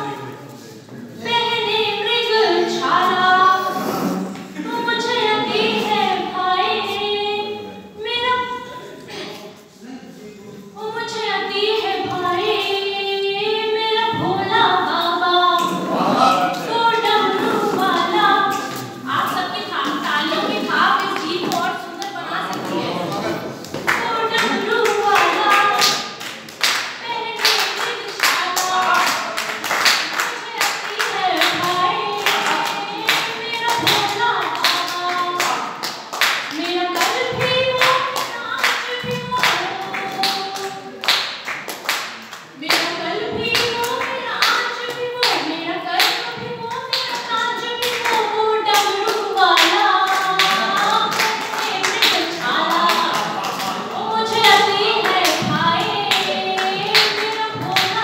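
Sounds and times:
person singing: 1.2 - 9.3, 30.4 - 35.7, 49.3 - 58.0
audience clapping along: 19.9 - 58.0.

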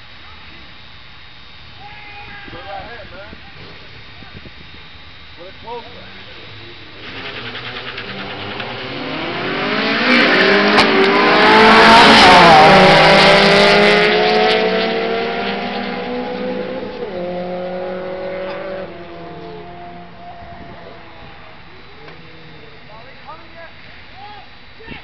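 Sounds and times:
cars accelerating past: 7.0 - 22.7.

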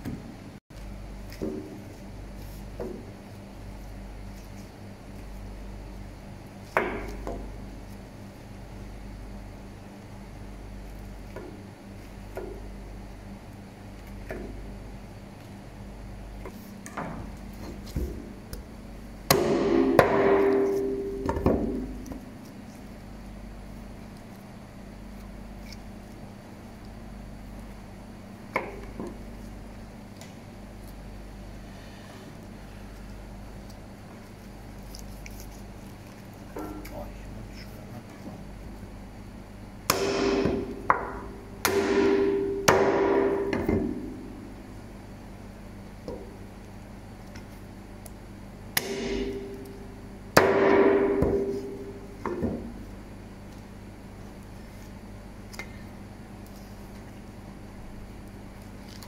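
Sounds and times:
meat cleaver chopping on board: 19.3 - 22.0, 39.9 - 44.0, 48.8 - 49.7.

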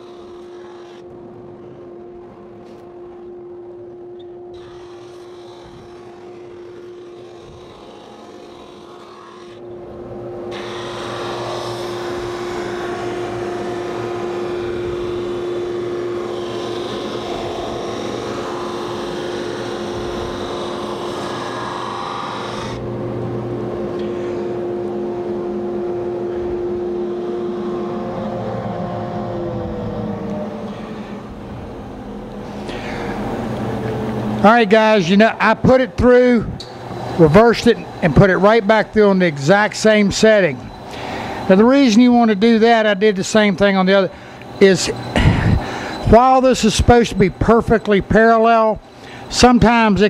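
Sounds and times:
hissing sanding noise: 0.0 - 1.0, 4.6 - 9.6
sander motor hum: 0.0 - 50.0.

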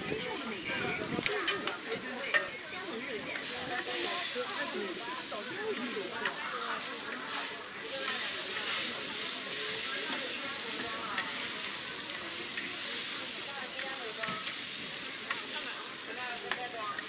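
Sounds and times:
squid sizzling on griddle: 0.1 - 17.0
metal spatula scraping griddle: 3.4 - 15.5.

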